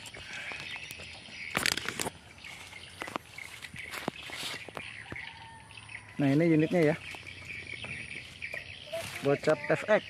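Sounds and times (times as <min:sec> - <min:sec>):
birds chirping: 0:00.0 - 0:10.0
camera handling knocks and rustles: 0:01.5 - 0:02.2.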